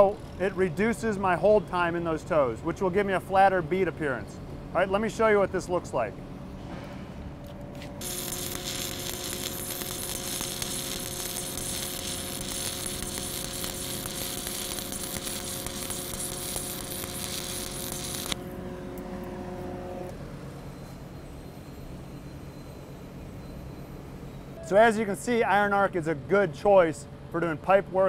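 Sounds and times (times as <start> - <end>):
steady hum: 0.0 - 25.2
welding arc crackling sizzle: 8.0 - 19.4.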